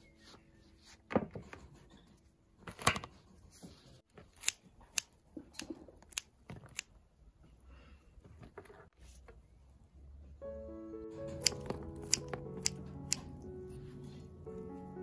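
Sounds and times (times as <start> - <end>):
blade snipping stems: 4.2 - 6.9, 11.3 - 13.3.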